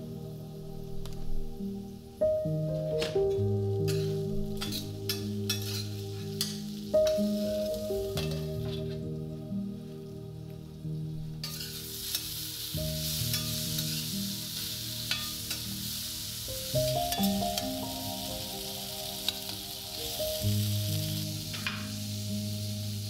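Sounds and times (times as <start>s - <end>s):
potatoes sizzling in oil: 1.0s - 9.2s, 11.4s - 23.0s
spatula scraping and tapping pan: 3.9s - 6.6s.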